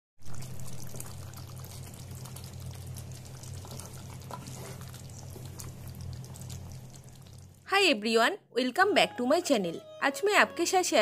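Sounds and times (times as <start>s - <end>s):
curry bubbling in a pan: 0.2s - 7.7s.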